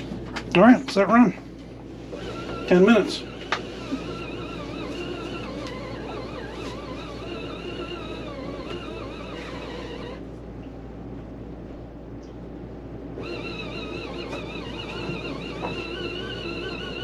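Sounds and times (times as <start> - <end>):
washing machine motor whining: 1.2 - 10.3, 13.0 - 17.0.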